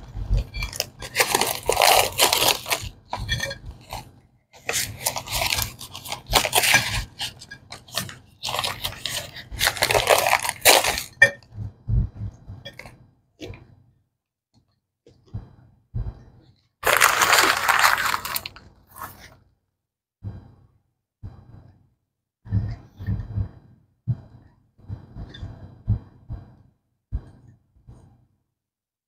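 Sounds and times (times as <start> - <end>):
cornstarch block crunching: 0.0 - 4.0, 4.6 - 11.2, 16.8 - 19.2
paper wrapper crinkling: 0.0 - 4.0, 4.6 - 11.2, 16.8 - 19.3.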